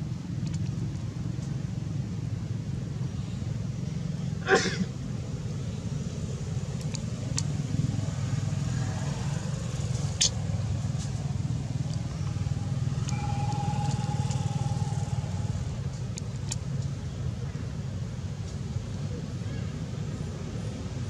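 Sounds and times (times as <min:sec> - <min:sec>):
engine rumbling: 0:00.0 - 0:19.2
faint sharp clicks: 0:06.8 - 0:07.5.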